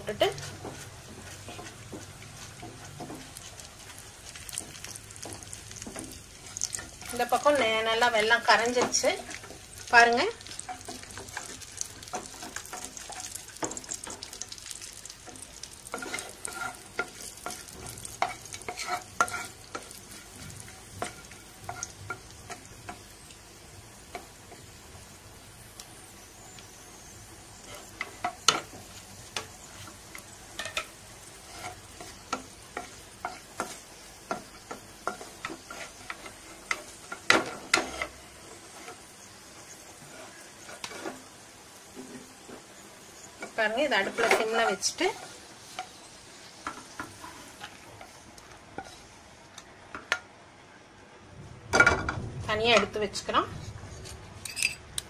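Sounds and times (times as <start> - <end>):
wooden spatula scraping a pan: 0.0 - 23.0, 27.6 - 41.3, 41.9 - 46.0, 46.6 - 48.2, 48.8 - 49.2
nuts sizzling in a pan: 0.0 - 50.2.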